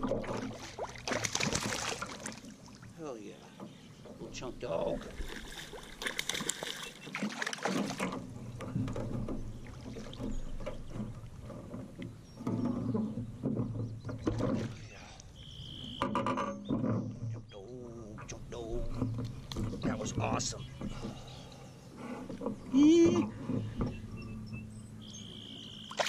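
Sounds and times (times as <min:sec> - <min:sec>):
fish splashing and thrashing in water: 0:00.0 - 0:02.9, 0:05.0 - 0:12.0, 0:25.8 - 0:26.0.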